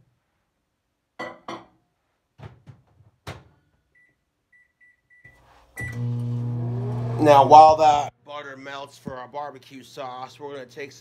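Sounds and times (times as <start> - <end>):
microwave keypad beeps: 4.6 - 6.0.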